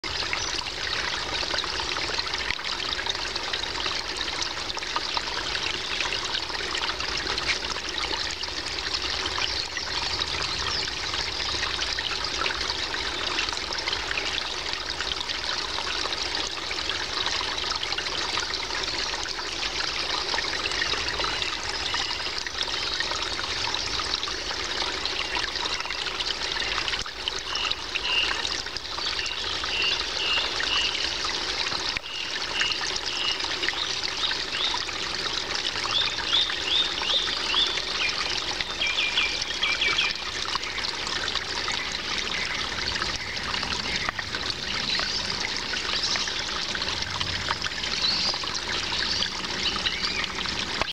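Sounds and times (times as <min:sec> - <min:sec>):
stream trickling over stones: 0:00.0 - 0:50.9.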